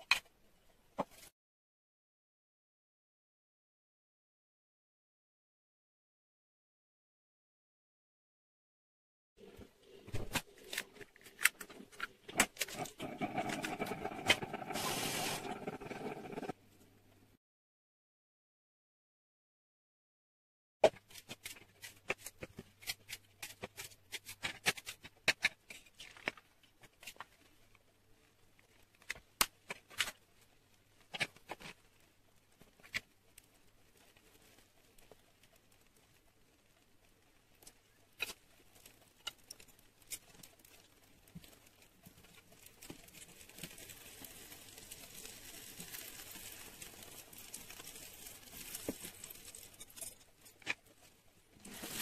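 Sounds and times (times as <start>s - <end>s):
short hiss: 14.6s - 15.6s.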